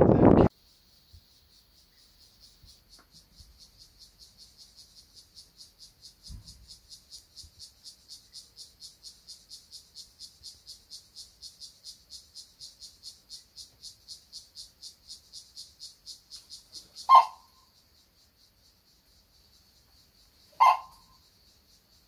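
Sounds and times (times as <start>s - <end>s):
wind noise rushing: 0.0s - 0.5s
insect chirping: 0.1s - 22.0s.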